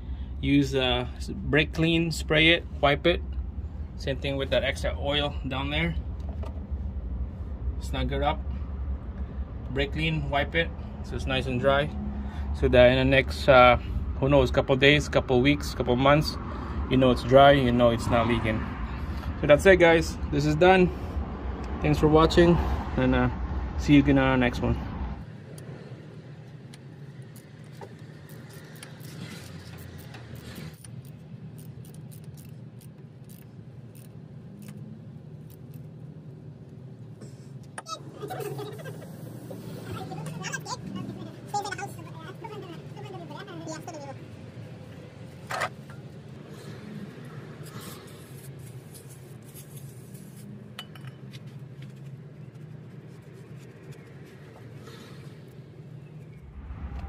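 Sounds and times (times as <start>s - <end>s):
steady low hum: 0.0s - 22.6s, 23.3s - 57.0s
socket ratchet clicking: 27.3s - 34.8s.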